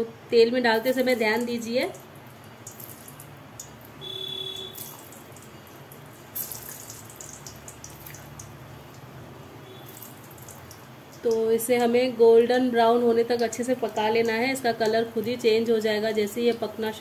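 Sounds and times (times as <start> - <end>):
oil sizzling and crackling: 0.7 - 12.0.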